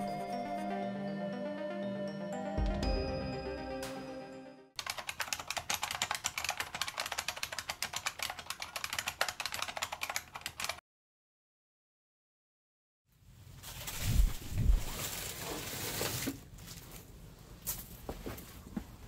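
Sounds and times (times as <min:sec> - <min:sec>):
chiming mallet percussion music: 0:00.0 - 0:04.6
rapid keyboard typing: 0:04.8 - 0:10.8.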